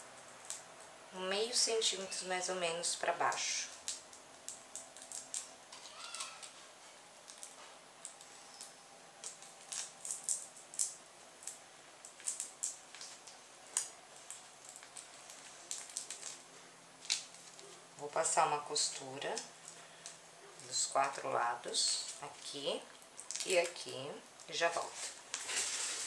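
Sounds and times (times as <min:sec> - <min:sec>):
fabric rustling: 0:24.8 - 0:26.0.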